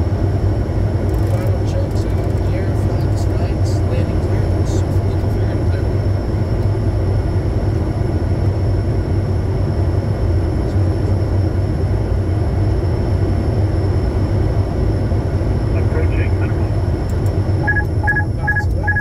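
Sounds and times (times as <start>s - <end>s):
jet engine and airflow rumble: 0.0s - 19.0s
faint high whine: 15.2s - 19.0s.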